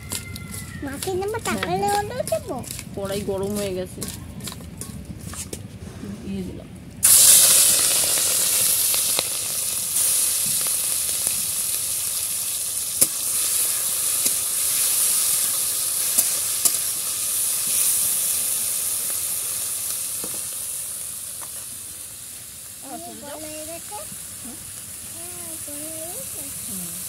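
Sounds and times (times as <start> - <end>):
prawns sizzling in hot oil: 7.0 - 27.0.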